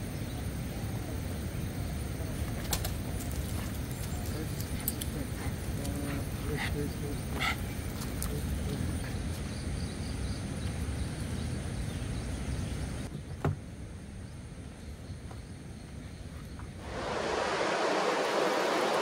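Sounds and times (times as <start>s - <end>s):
faint insect chirping: 0.0s - 19.0s
low rumbling noise: 16.8s - 19.0s.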